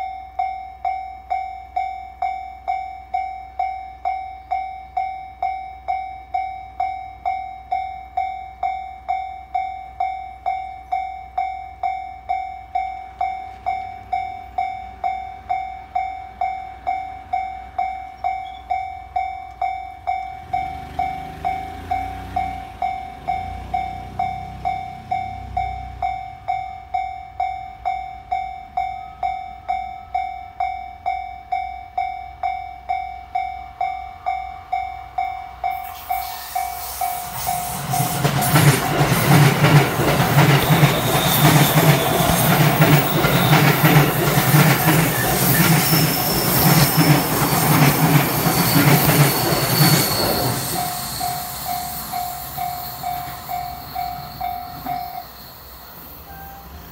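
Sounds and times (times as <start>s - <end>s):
level crossing bell: 0.0s - 37.9s, 46.0s - 55.4s
train wheels on rails: 0.3s - 30.3s, 31.0s - 56.9s
train motor hum: 34.6s - 56.9s.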